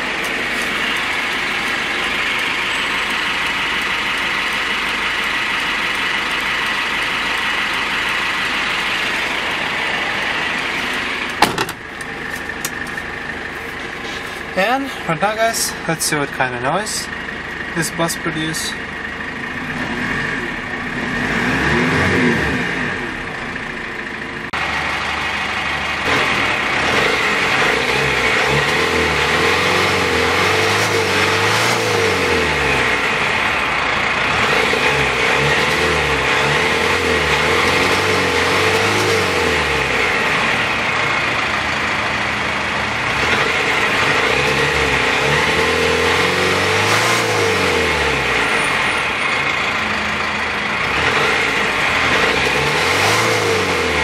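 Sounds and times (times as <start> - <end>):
diesel engine revving: 0.0 - 54.0.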